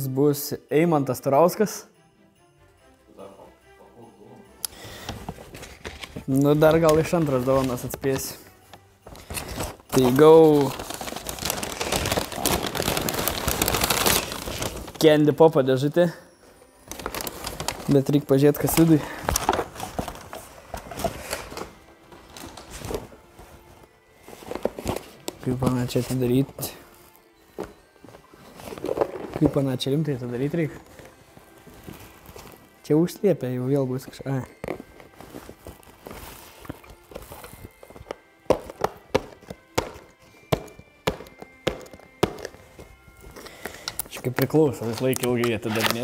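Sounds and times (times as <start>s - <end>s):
paper bag rustling: 4.9s - 15.4s, 16.8s - 46.0s
cardboard box clicks and knocks: 37.8s - 42.6s.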